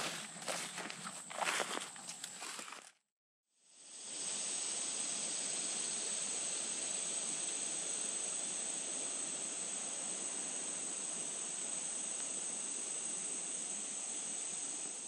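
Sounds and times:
insect chorus droning: 0.0 - 2.8, 3.9 - 15.0
faint hiss: 3.6 - 15.0.

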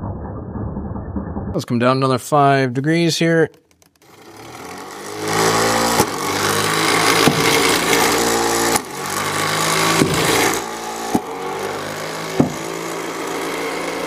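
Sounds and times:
motor whining: 4.0 - 14.0
balls thumping: 7.2 - 7.6, 9.9 - 10.4, 12.4 - 12.6.

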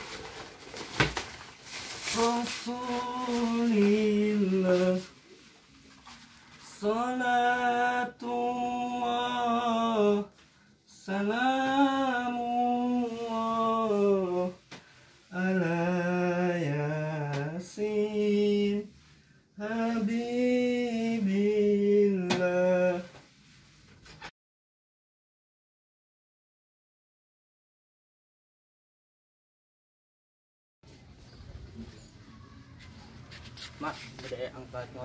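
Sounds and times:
person singing: 2.1 - 5.2.

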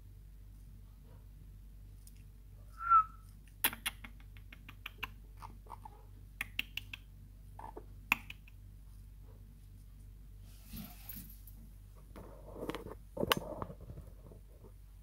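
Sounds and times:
parrot whistled chirp: 2.8 - 3.2.

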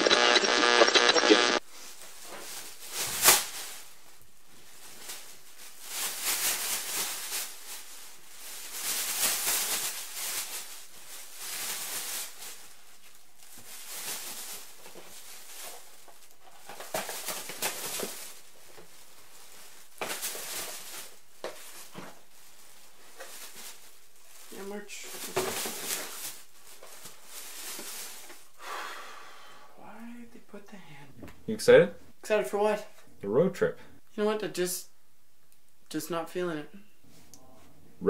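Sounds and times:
plastic bag rustling: 1.6 - 28.6.

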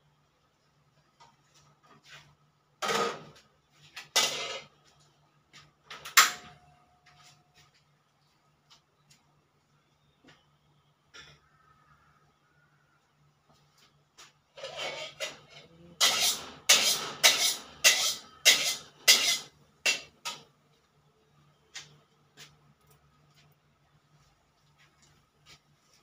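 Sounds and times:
metal utensil scraping cookware: 4.1 - 4.7, 14.6 - 20.5.

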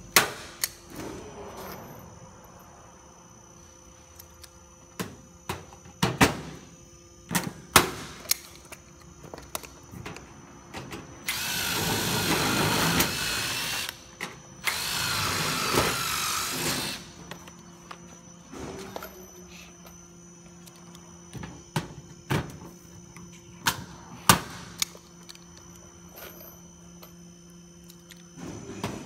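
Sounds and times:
cordless drill driving screws: 11.3 - 14.0, 14.6 - 17.0.

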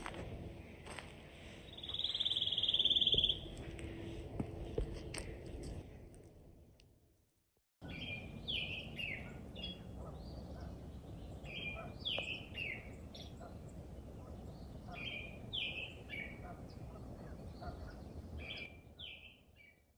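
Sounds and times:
songbird singing: 1.4 - 3.7, 7.8 - 19.9.

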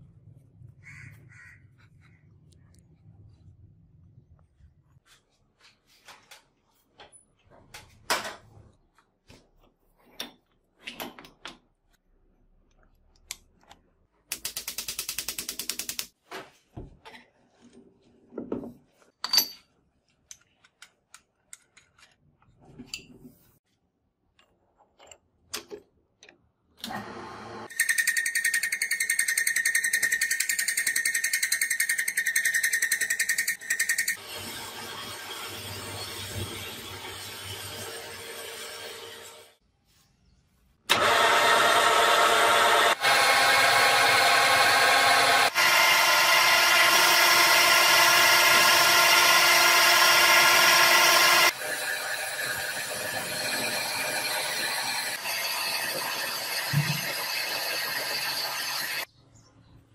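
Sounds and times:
machine high-pitched whine: 42.8 - 59.1.

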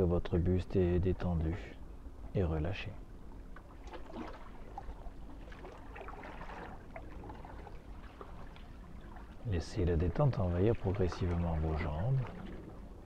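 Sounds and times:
small waves lapping against rocks: 3.4 - 13.0.

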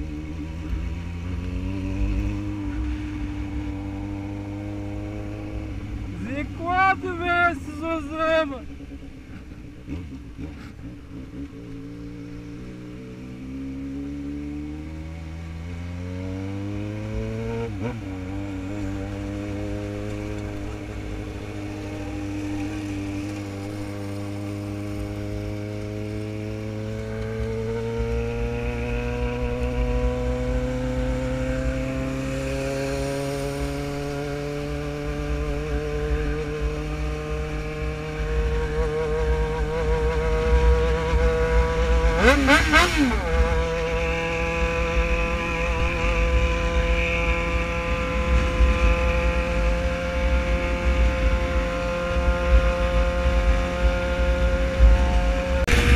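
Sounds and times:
motorcycle engine accelerating: 0.0 - 55.9
wind rushing on microphone: 39.6 - 55.9
loud rush of noise: 55.5 - 55.9.

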